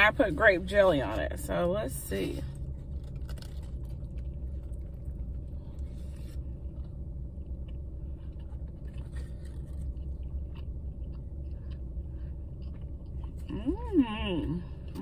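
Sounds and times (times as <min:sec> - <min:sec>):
car interior rumble: 0:00.0 - 0:15.0
person chewing: 0:02.5 - 0:14.0.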